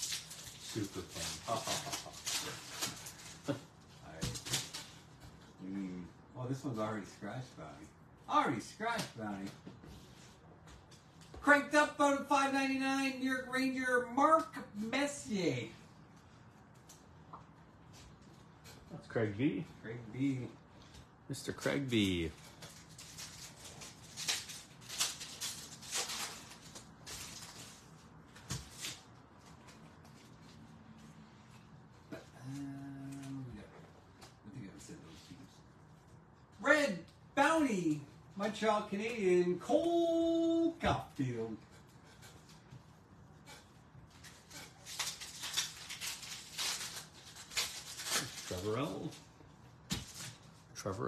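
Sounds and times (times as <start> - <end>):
wrapper tearing and crinkling: 0.0 - 3.6, 22.4 - 28.0, 44.8 - 49.2.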